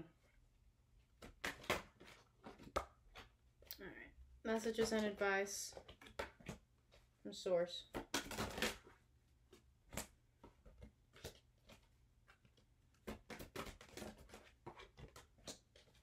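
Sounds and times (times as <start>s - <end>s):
cards slapping and rustling: 1.1s - 3.7s, 4.7s - 7.1s, 7.9s - 16.0s.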